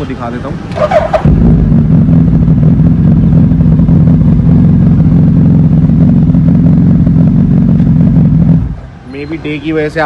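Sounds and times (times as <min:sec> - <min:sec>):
motorcycle engine idling: 0:01.3 - 0:09.0.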